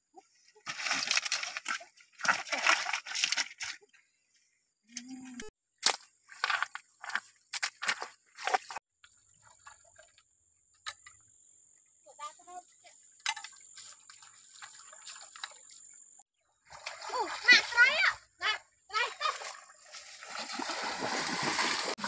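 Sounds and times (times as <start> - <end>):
stones shifted by hand: 5.8 - 8.8.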